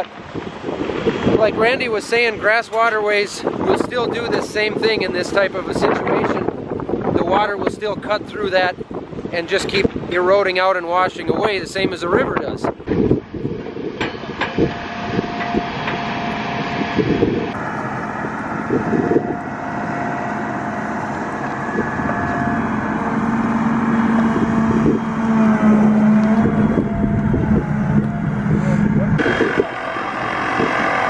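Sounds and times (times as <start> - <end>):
steady low drone: 11.2 - 31.0
diesel engine running: 12.8 - 31.0.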